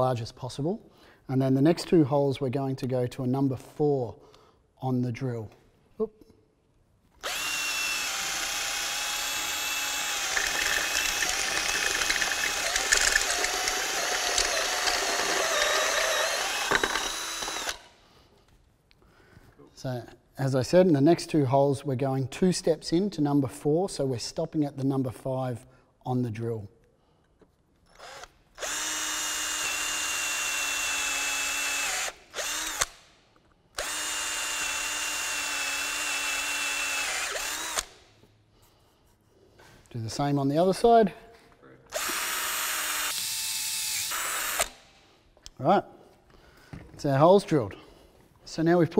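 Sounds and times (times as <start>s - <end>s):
drill bit cutting clicks: 7.2s - 17.9s, 27.9s - 33.0s, 33.8s - 38.0s, 41.9s - 44.9s
cordless drill whining: 7.2s - 18.0s, 27.9s - 33.0s, 33.8s - 38.0s, 41.9s - 45.0s.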